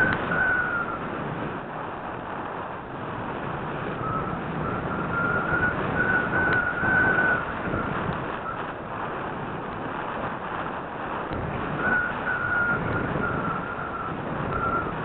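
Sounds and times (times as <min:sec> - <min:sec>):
thin whistle: 0:00.0 - 0:01.1, 0:04.0 - 0:08.7, 0:11.7 - 0:15.0
airflow rushing over camera: 0:00.0 - 0:15.0.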